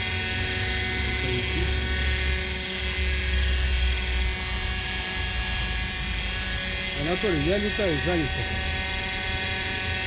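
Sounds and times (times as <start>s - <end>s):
model helicopter rotor whine: 0.0s - 10.0s.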